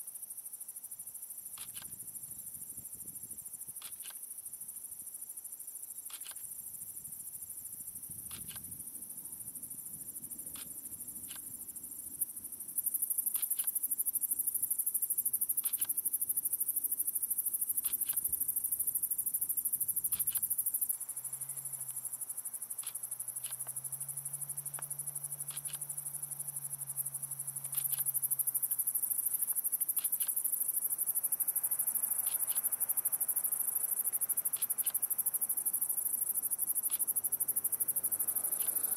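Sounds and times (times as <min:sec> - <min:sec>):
crickets trilling: 0:00.2 - 0:38.9.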